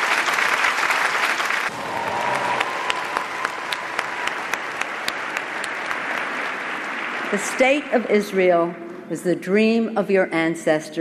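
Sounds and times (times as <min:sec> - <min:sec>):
audience applauding: 0:00.0 - 0:08.4.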